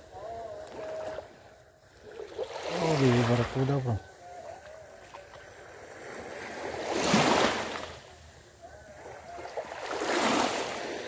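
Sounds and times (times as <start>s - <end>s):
small waves washing ashore: 0.0s - 11.0s.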